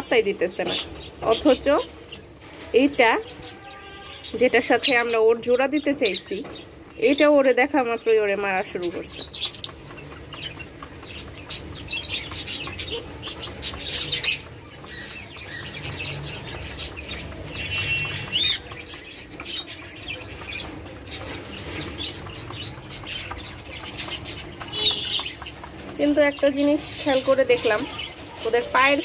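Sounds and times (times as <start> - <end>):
high bird chirps: 9.0 - 28.6.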